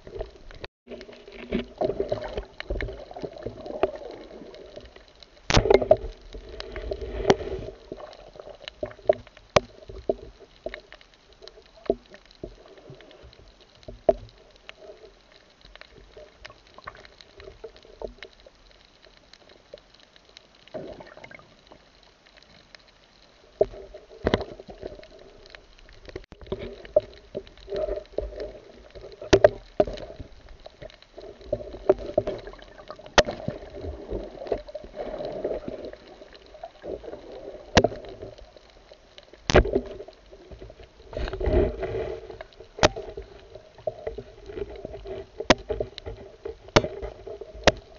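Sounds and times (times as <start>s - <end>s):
underwater water movement: 0.0s - 47.9s
sharp clicks and knocks: 44.0s - 47.9s.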